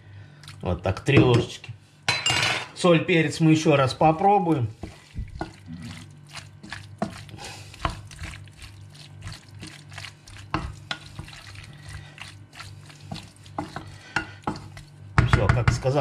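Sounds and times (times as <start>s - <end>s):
steady low hum: 0.0s - 16.0s
spatula scraping and knocking pot: 4.6s - 5.6s, 6.4s - 8.4s, 9.4s - 16.0s.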